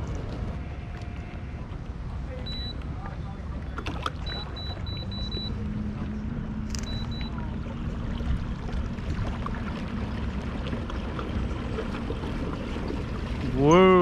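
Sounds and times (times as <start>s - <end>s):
trolling motor electric hum: 0.0s - 14.0s
wind and water rumble: 0.0s - 14.0s
high electronic beeps: 4.2s - 5.5s, 6.8s - 7.3s.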